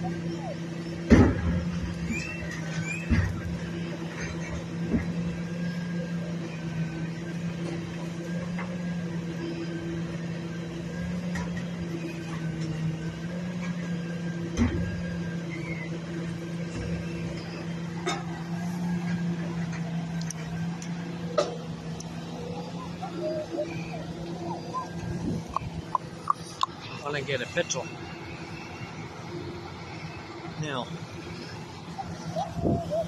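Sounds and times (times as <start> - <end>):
truck diesel engine humming: 0.0 - 33.0.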